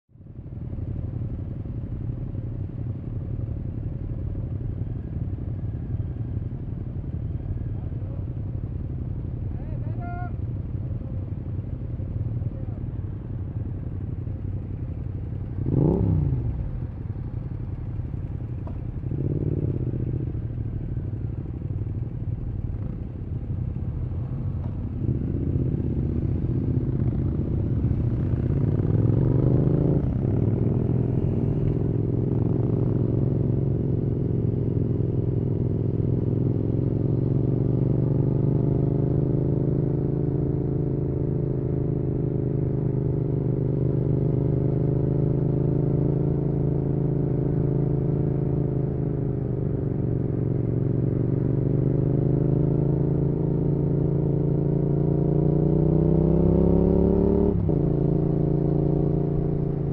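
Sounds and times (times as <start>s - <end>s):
motorcycle engine revving: 15.1s - 17.5s, 18.2s - 20.6s, 23.7s - 59.9s.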